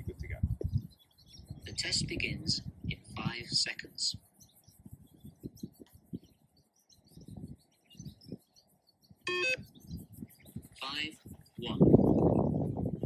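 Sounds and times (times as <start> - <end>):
birds chirping: 0.0 - 13.0
short electronic beep: 9.3 - 9.6.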